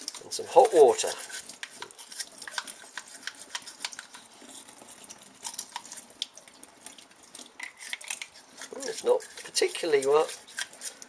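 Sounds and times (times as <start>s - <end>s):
toothbrush scrubbing plastic: 0.0s - 11.0s.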